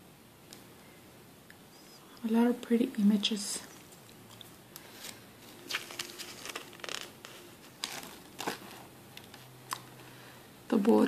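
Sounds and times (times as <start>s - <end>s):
paper pages rustling: 4.8s - 9.5s.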